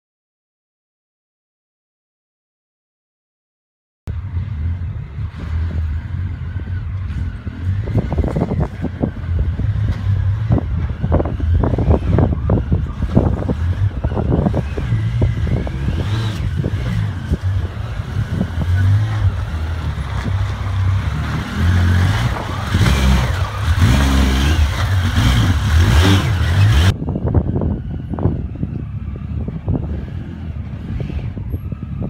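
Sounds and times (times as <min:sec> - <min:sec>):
engine revving: 0:04.1 - 0:27.0, 0:29.6 - 0:31.6.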